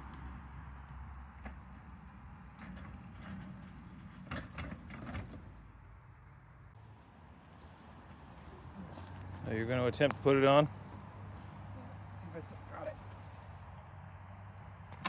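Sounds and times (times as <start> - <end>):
miniature train rumbling on track: 1.1 - 5.8.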